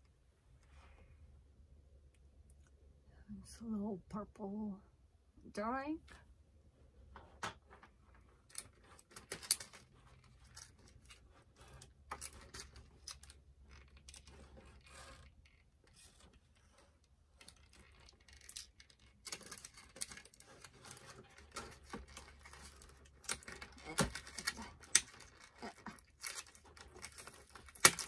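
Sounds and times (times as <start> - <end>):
plastic packaging rustling: 17.4 - 28.0.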